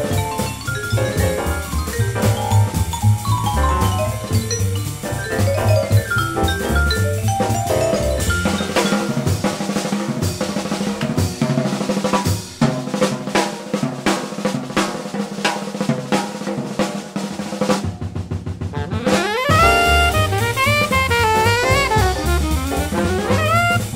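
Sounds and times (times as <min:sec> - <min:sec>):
band instruments playing: 0:00.0 - 0:09.9, 0:18.6 - 0:23.9
jazz drum kit solo: 0:00.0 - 0:23.9.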